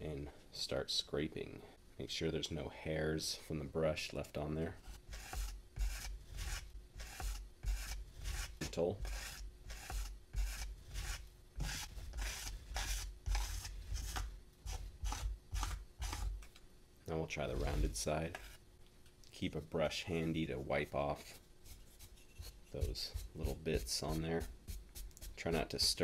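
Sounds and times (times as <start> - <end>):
metal rib scraping clay: 4.7 - 16.5, 21.0 - 26.0.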